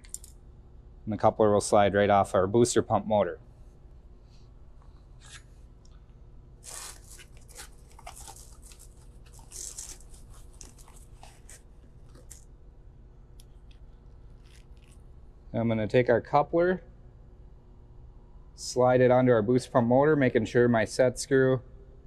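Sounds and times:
steady low hum: 0.0 - 22.0
plastic and cardboard crinkling: 6.6 - 12.4.

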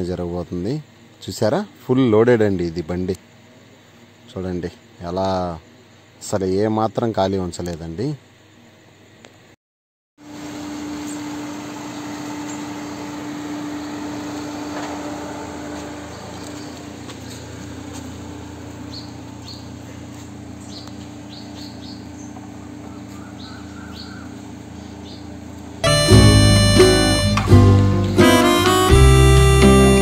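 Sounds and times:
birds chirping: 16.0 - 26.0.

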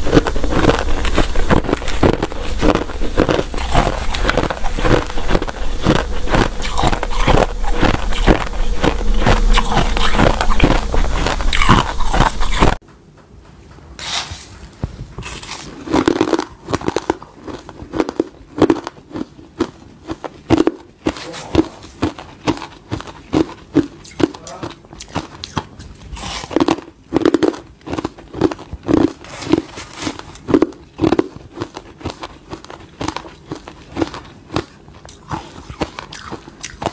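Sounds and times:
crushed ice crunching: 0.0 - 12.7, 29.2 - 31.8.

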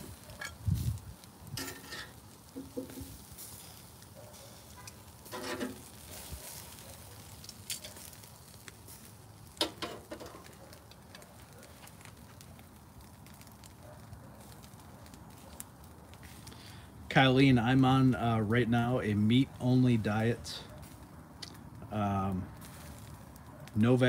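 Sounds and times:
faint sizzle: 0.0 - 24.0
tongs scraping metal grate: 0.1 - 0.8, 1.5 - 3.1, 4.8 - 6.3, 9.6 - 10.6.

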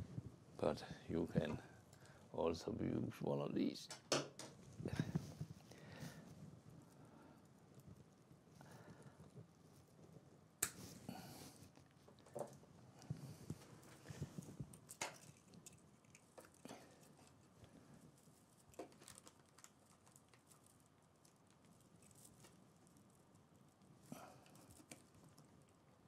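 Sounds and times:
branches rustling and ticking: 13.1 - 25.7.

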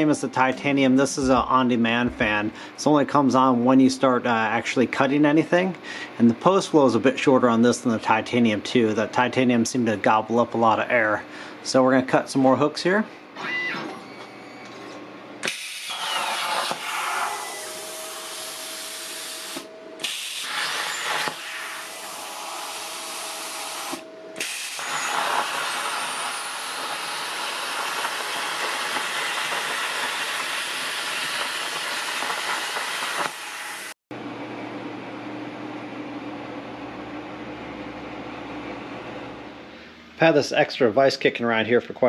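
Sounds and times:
plasma cutter hissing: 15.4 - 34.0.

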